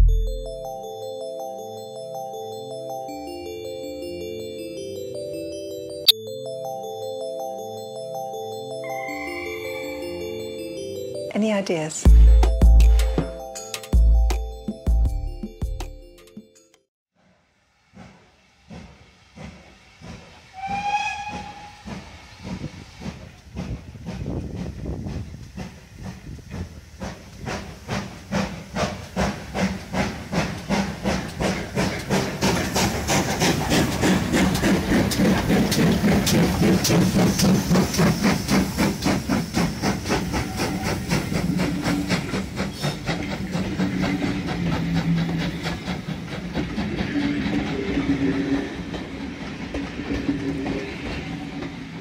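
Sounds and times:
steam locomotive chuffing: 17.2s - 52.0s
train wheels clattering on rails: 17.9s - 52.0s.

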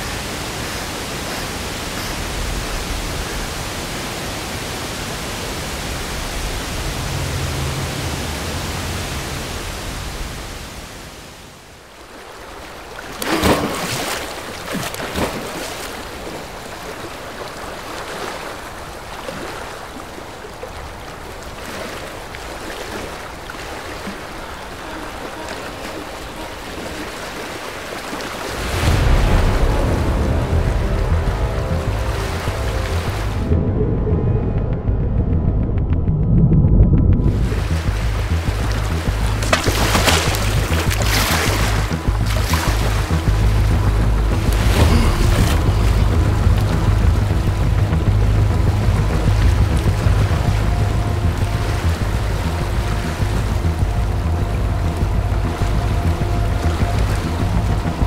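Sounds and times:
steady rushing noise: 0.0s - 12.0s, 15.3s - 58.0s
water splash: 0.0s - 33.5s, 37.3s - 58.0s
person swimming splashing: 12.1s - 29.0s, 37.4s - 43.6s, 44.4s - 57.8s.

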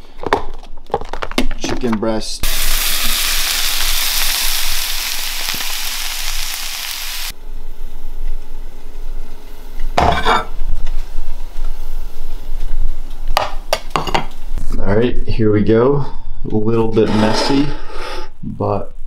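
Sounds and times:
food sizzling in a frying pan: 2.4s - 7.4s.

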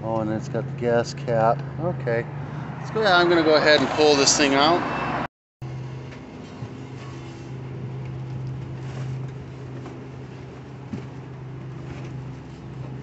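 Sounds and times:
low mechanical hum: 5.6s - 13.0s.

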